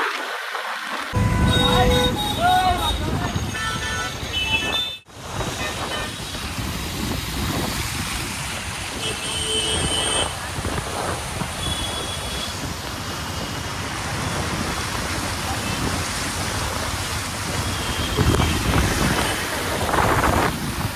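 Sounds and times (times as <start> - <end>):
water churned under scooter tyres: 0.0 - 20.9
traffic hum: 0.5 - 20.9
wind on microphone: 4.2 - 20.9.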